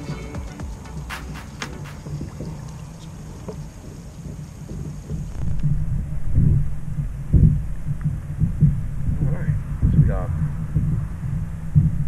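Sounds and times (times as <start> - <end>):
water around a kayak: 1.9 - 9.0
low rumble of wind: 1.9 - 12.0.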